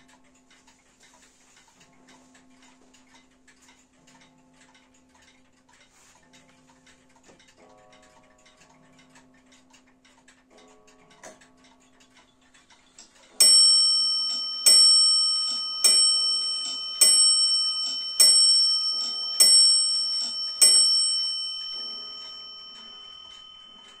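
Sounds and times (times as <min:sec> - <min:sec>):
wall clock ticking: 0:00.0 - 0:24.0
clock bell striking: 0:13.4 - 0:24.0.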